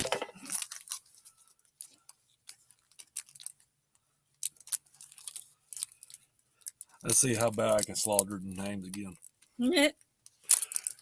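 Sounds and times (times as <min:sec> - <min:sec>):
trading cards clicking and rustling: 0:06.7 - 0:09.3.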